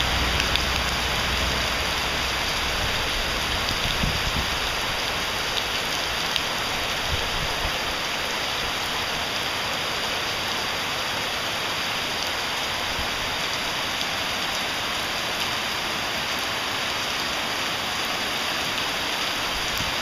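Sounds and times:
raindrop ticks: 0.0 - 1.7
heavy rain on pavement: 0.0 - 20.0.

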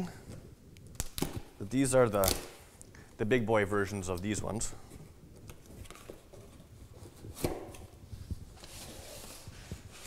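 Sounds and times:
cardboard rustling: 5.5 - 10.0.

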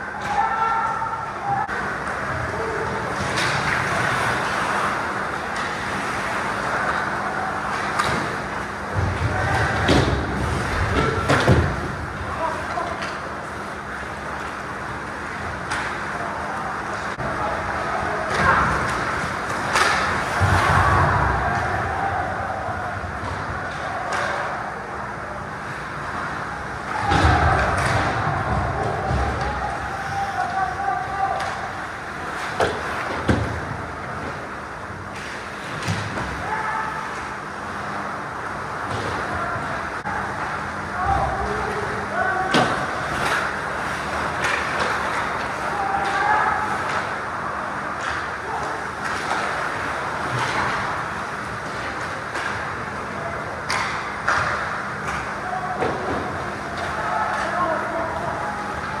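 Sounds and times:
hockey sticks and puck clacking: 1.7 - 25.0, 26.1 - 37.4, 40.0 - 59.0
sharp clacks of sticks and puck: 18.3 - 20.7, 42.5 - 47.2, 48.0 - 52.8, 53.6 - 57.6.

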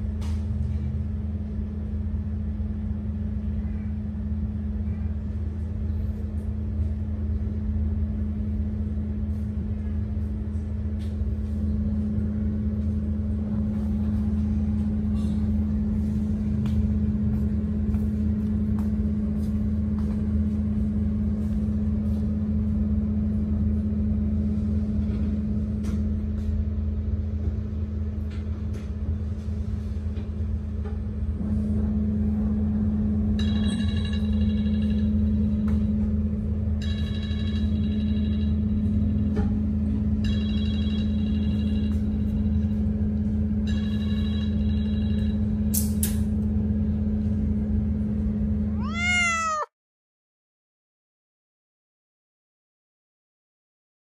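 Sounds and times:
low hum: 0.0 - 49.6
cat meowing: 48.7 - 49.7.

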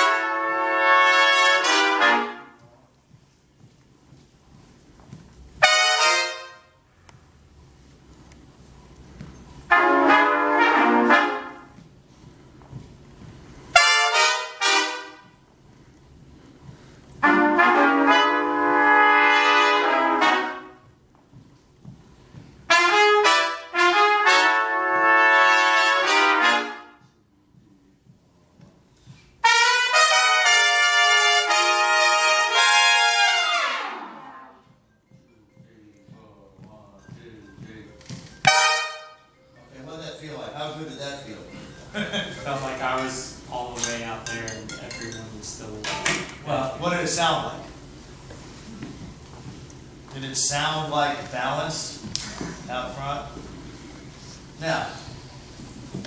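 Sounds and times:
trumpet section playing chords: 0.0 - 2.9, 5.6 - 7.0, 9.6 - 11.9, 13.7 - 15.5, 17.2 - 21.0, 22.6 - 27.2, 29.4 - 34.8, 38.0 - 39.6.

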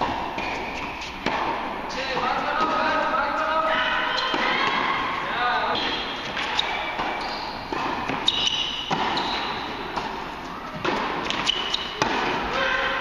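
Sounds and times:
tennis ball hitting racket: 0.0 - 3.1, 4.2 - 13.0
shoe squeaks: 0.2 - 1.2, 3.7 - 4.8, 5.6 - 12.0
ball bouncing on court: 5.7 - 12.8.

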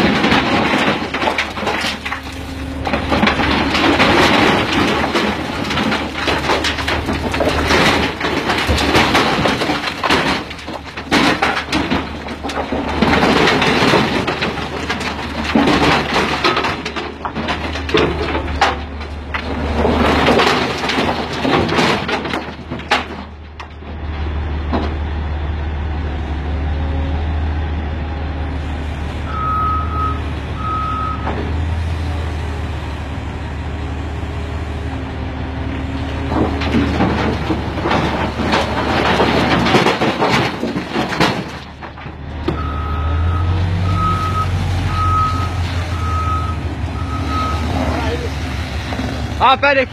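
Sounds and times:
rocks crashing into truck bed: 0.0 - 25.0, 35.8 - 49.9
diesel engine running: 0.0 - 49.9
reversing alarm beeps: 29.3 - 31.2, 42.6 - 47.7.

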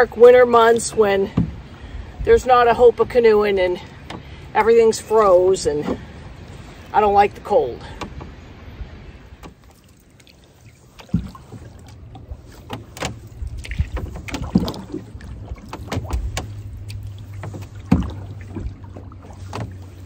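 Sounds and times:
canoe paddle splashing in water: 0.0 - 20.0
low steady rumble: 0.0 - 20.0
paddle knocks: 0.8 - 1.7, 10.9 - 20.0.

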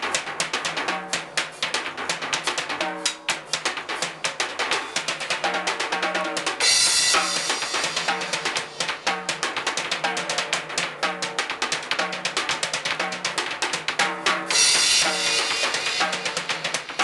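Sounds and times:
snare and bass drum strokes: 0.0 - 17.0
cymbal crash: 14.5 - 16.6.

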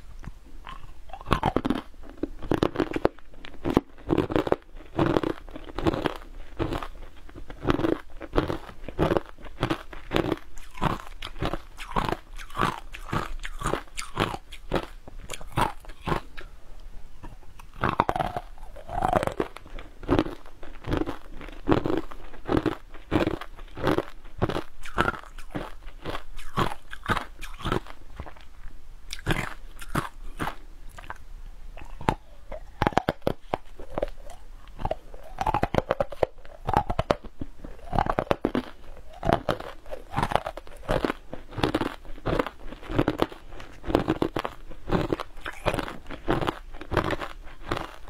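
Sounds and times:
crunching and chewing: 0.1 - 31.2, 31.8 - 48.0
wet mouth sounds: 0.2 - 16.6, 17.2 - 31.2, 31.8 - 48.0.

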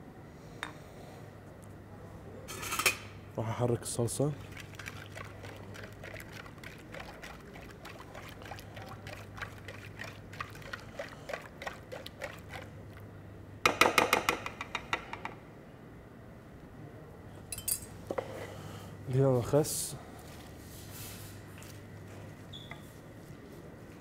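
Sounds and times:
liquid swishing: 4.4 - 13.0
metal spoon clinking in bowl: 17.5 - 17.9.

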